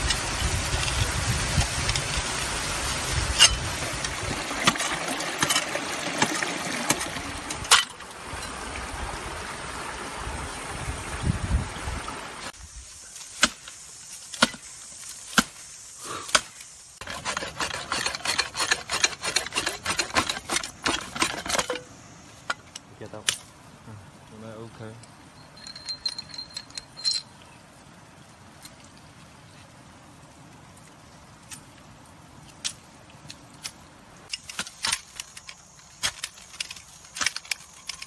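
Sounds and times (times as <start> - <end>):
running water from waterfall: 0.0 - 34.3
shovel blade scraping rock: 3.2 - 8.0, 16.3 - 21.8
shovel sawing bamboo: 13.2 - 21.8.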